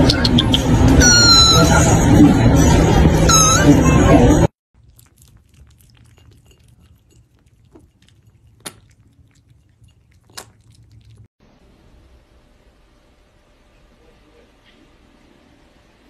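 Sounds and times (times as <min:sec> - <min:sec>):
cats lapping milk: 0:04.8 - 0:11.3.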